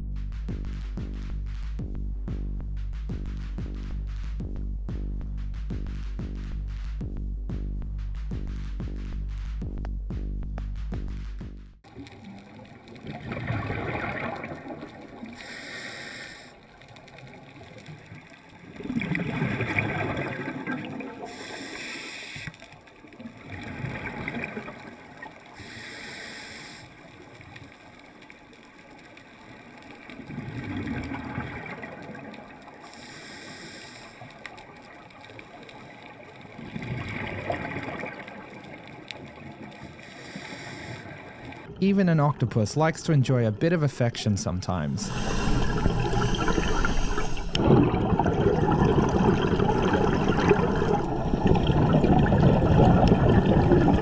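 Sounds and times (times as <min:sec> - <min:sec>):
exhaled bubbles rumbling: 0:11.9 - 0:15.6, 0:16.6 - 0:21.5, 0:22.8 - 0:25.6, 0:28.8 - 0:32.9, 0:34.3 - 0:39.9, 0:45.0 - 0:54.0
regulator inhale hiss: 0:15.3 - 0:16.9, 0:21.2 - 0:22.8, 0:25.5 - 0:27.5, 0:32.8 - 0:34.8, 0:39.7 - 0:41.7, 0:45.0 - 0:47.6.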